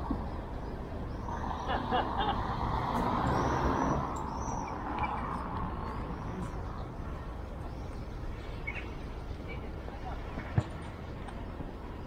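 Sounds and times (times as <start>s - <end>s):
heavy vehicle passing: 0.0s - 7.7s
traffic hum: 0.0s - 12.0s
faint bird chirps: 3.2s - 9.6s.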